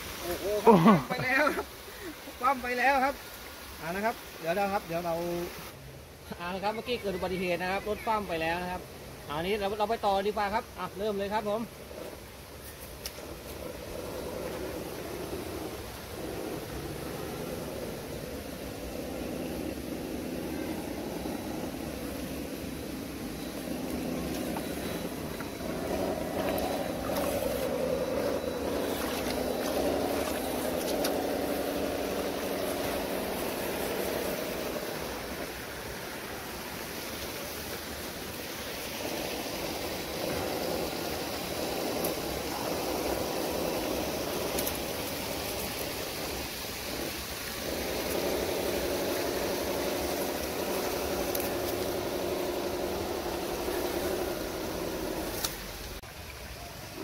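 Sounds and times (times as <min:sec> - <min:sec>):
water rushing: 0:00.0 - 0:57.0
electric motors whining: 0:11.0 - 0:56.0.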